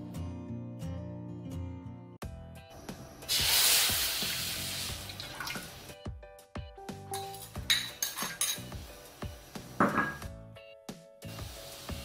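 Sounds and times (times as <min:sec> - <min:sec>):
soft guitar music: 0:00.0 - 0:06.0
liquid splashing into a wok: 0:03.3 - 0:06.0.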